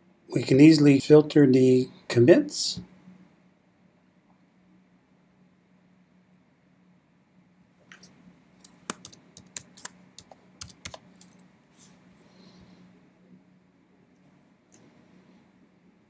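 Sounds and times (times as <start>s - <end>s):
faint low hum: 0.0s - 16.0s
keyboard typing clicks: 7.9s - 11.4s.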